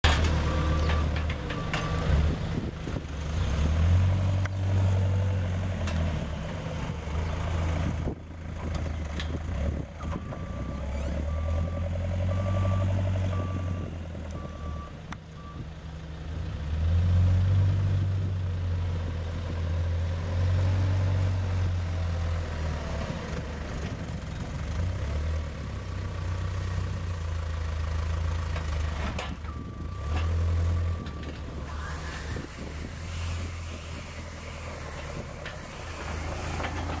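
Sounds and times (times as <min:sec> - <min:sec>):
diesel engines rumbling: 0:00.0 - 0:37.0
reversing alarm beeping: 0:29.5 - 0:32.6.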